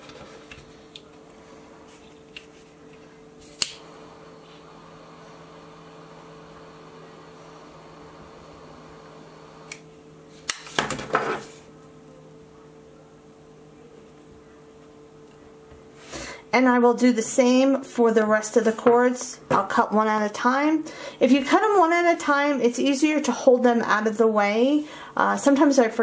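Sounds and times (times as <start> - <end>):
faint steady lighter sound: 3.4 - 9.9
lighter click: 3.5 - 3.8.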